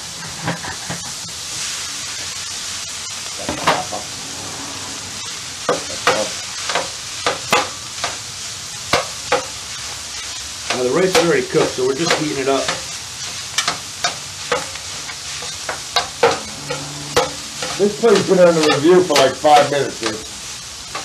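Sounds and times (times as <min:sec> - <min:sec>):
rice sizzling on griddle: 0:00.0 - 0:21.0
metal spatula scraping griddle: 0:10.7 - 0:20.2.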